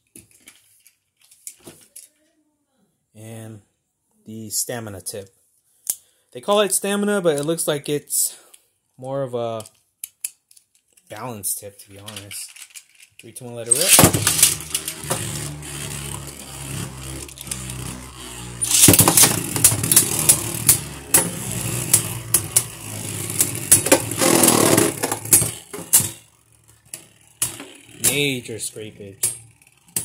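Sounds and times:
tops scraping together: 13.4s - 30.0s
tops clashing with sharp clacks: 13.5s - 30.0s
spinning tops whirring: 13.6s - 30.0s
spinning tops clattering: 13.7s - 15.2s, 15.8s - 30.0s.

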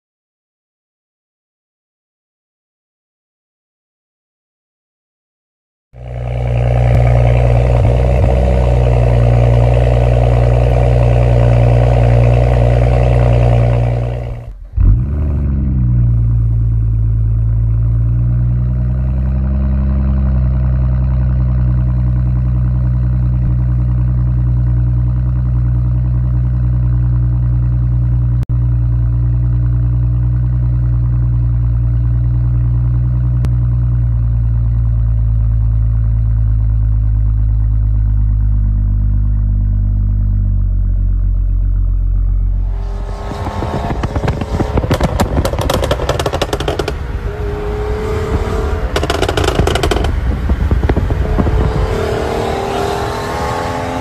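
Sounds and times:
car engine idling: 6.0s - 53.9s
car engine revving with crackling: 6.0s - 54.0s
wind rush: 42.5s - 53.6s.

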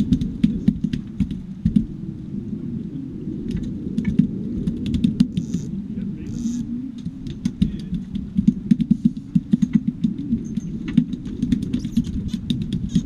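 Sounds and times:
steady low rumble: 0.0s - 13.0s
fishing tackle clicks and knocks: 7.0s - 13.0s.

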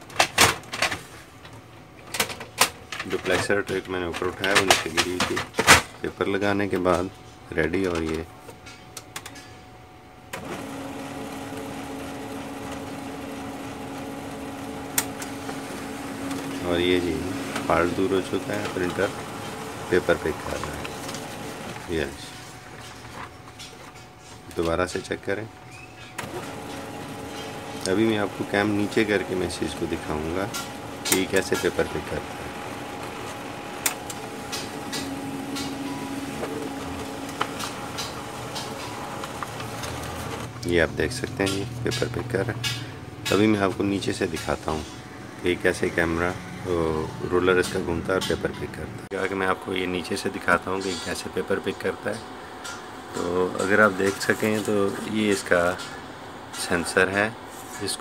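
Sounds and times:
printer mechanism humming: 0.0s - 58.0s
printer click: 2.1s - 5.9s, 10.3s - 23.0s, 24.5s - 40.6s, 41.2s - 44.9s, 52.7s - 56.0s.

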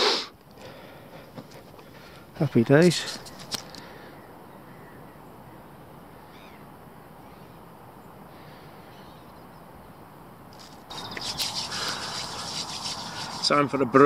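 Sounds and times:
outdoor background hiss: 0.0s - 14.0s
faint bird call: 6.2s - 7.6s.

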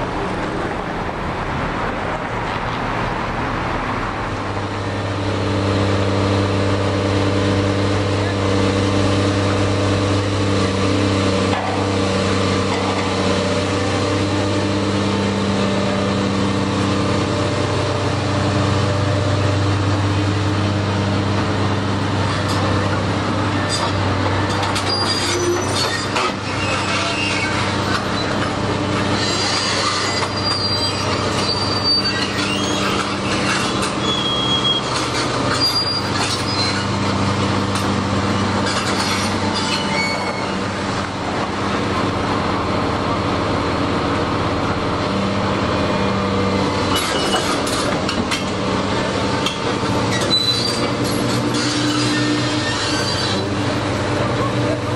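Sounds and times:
excavator diesel engine humming: 0.0s - 54.9s
metallic squeals and clanks: 22.2s - 40.9s, 46.8s - 48.6s, 49.4s - 53.6s.

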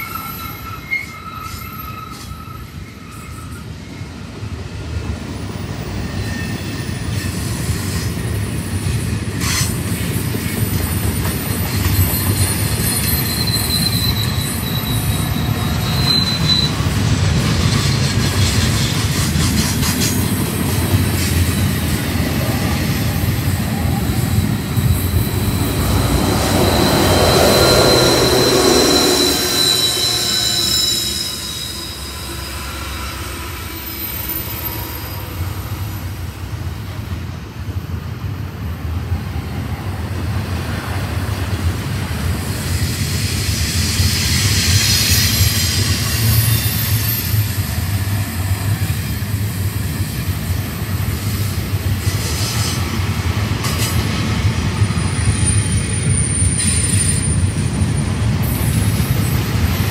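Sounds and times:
diesel locomotive passing: 0.0s - 59.9s
train cars rumbling: 0.0s - 59.9s
wheel flanges squealing: 10.4s - 36.2s.

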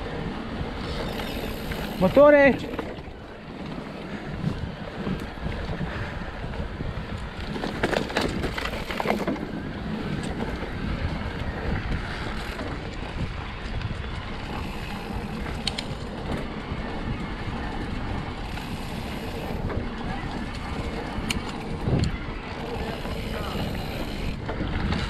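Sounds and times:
wind on microphone: 0.0s - 25.0s
bike frame rattle: 7.2s - 13.3s.

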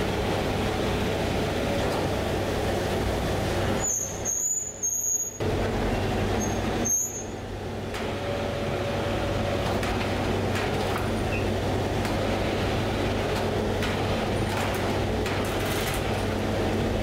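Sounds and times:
machinery hum: 0.0s - 3.8s, 5.4s - 17.0s.

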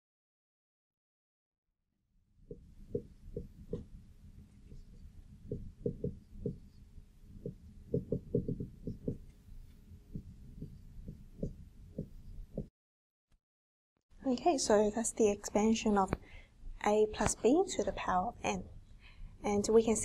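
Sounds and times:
marker tapping on whiteboard: 2.5s - 3.9s, 5.4s - 6.8s, 7.4s - 9.4s, 10.1s - 12.7s
faint steady hum: 2.5s - 12.7s.

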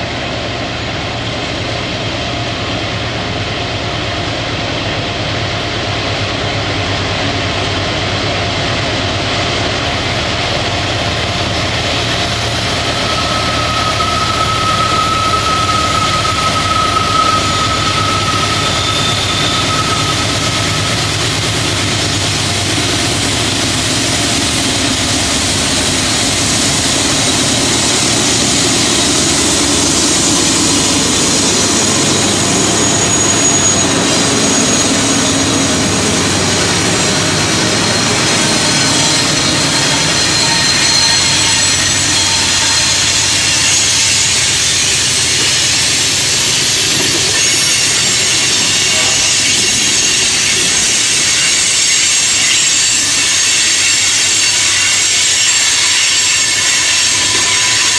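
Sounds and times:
diesel locomotive engines passing: 0.0s - 57.9s
thin high steady tone: 11.4s - 23.0s.

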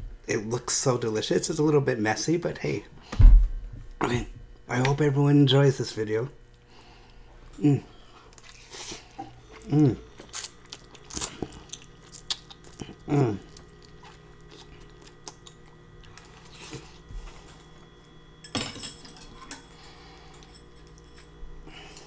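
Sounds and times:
slurping and chewing noodles: 6.5s - 17.8s.

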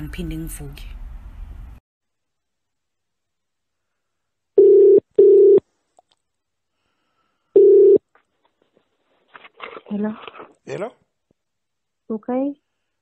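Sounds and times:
telephone ringback tone: 4.6s - 5.6s, 7.6s - 8.0s.

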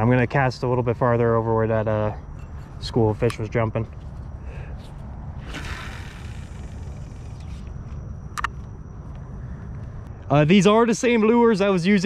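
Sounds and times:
steady low rumble: 0.0s - 12.0s
line paying out off reel: 5.4s - 7.7s.

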